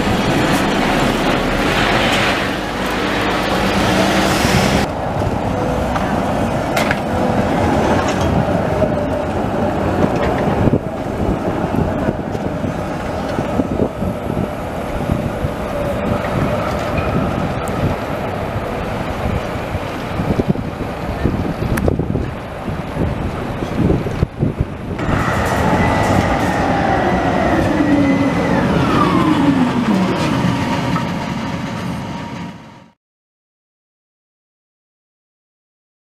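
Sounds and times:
tram wheels rumbling on rails: 0.0s - 33.0s.

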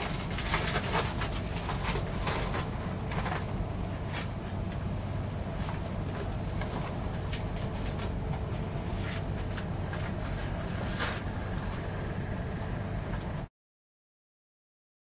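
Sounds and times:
steady low hum: 0.0s - 13.5s.

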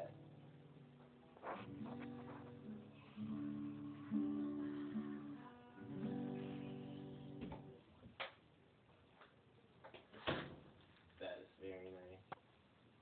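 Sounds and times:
acoustic guitar strummed: 0.0s - 7.8s.

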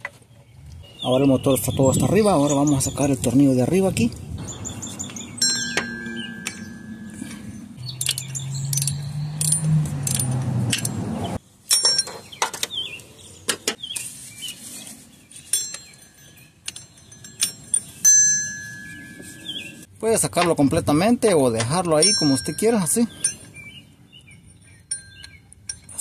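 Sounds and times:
low hum: 4.1s - 11.4s
metal tools clinking: 5.1s - 11.0s, 11.6s - 12.7s, 15.3s - 19.9s, 21.6s - 23.6s, 24.4s - 26.0s
ratchet clicking: 7.9s - 11.0s.

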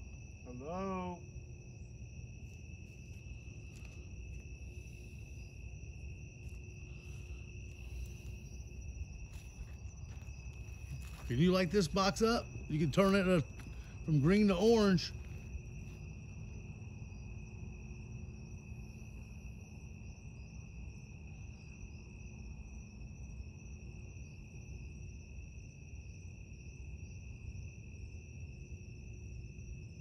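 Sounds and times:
low background rumble: 0.0s - 21.0s
crickets trilling: 0.0s - 30.0s.

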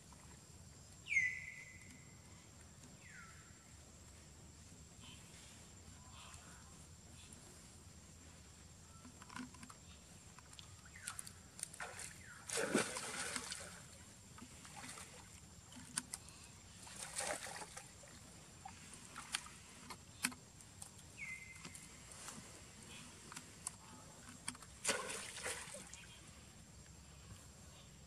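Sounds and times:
small clicks and drips: 9.0s - 12.1s
water splashing and sloshing: 10.3s - 26.2s.

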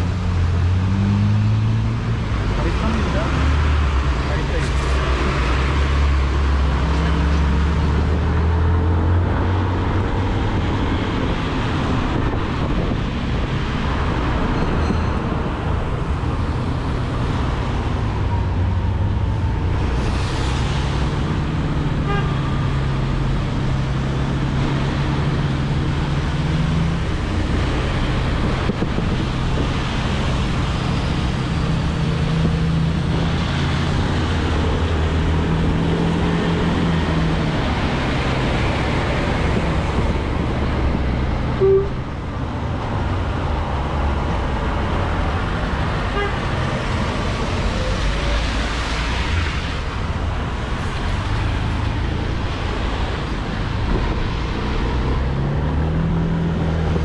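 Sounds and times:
surrounding traffic: 0.0s - 57.0s
tyre noise on wet road: 15.4s - 57.0s.

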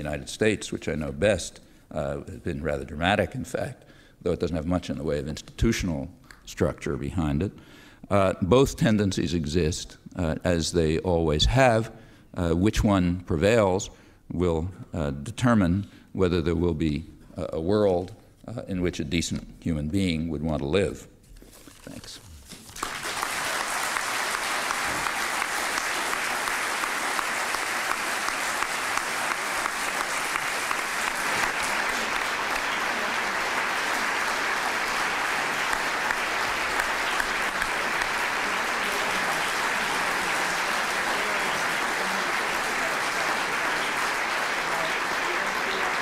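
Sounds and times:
audience applauding: 22.6s - 46.0s.

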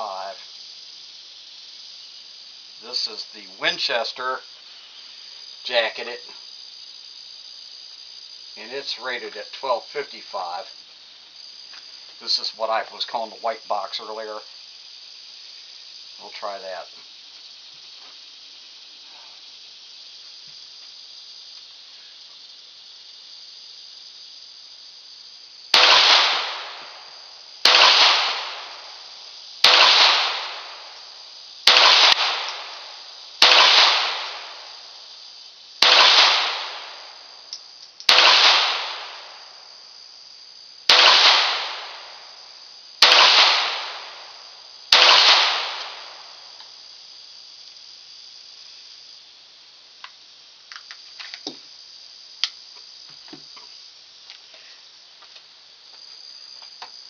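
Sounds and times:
pistol shots echoing: 25.8s - 26.9s, 27.6s - 28.8s, 29.6s - 30.8s, 31.7s - 34.6s, 35.8s - 36.9s, 38.1s - 39.2s, 40.9s - 42.0s, 43.0s - 44.1s, 44.9s - 46.1s.

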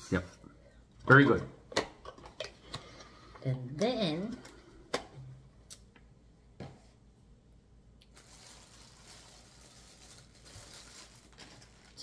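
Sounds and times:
plastic packaging rustling: 8.0s - 12.0s.

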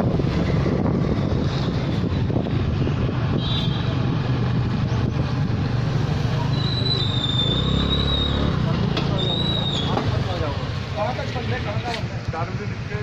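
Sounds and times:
wind rumbling on microphone: 0.0s - 10.2s
motorcycle traffic on wet road: 0.0s - 13.0s.

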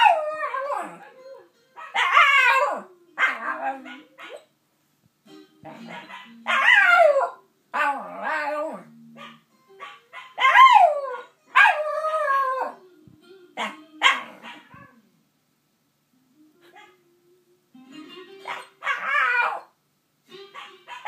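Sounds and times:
dog howling: 2.0s - 4.3s, 6.5s - 8.9s, 18.5s - 19.7s.

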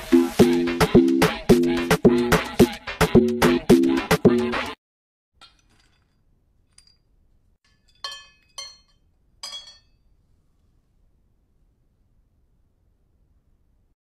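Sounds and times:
music: 0.0s - 4.8s
dog food clinking in metal bowl: 7.7s - 10.0s.

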